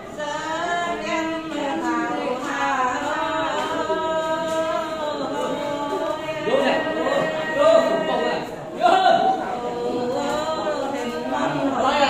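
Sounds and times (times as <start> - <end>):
person singing unaccompanied: 0.0 - 12.0.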